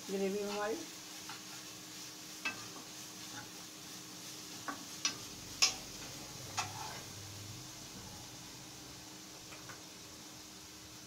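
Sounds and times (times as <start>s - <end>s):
faint steady sizzle: 0.0s - 11.0s
spoon scraping a pan: 0.4s - 1.8s, 2.4s - 3.7s, 4.4s - 7.2s.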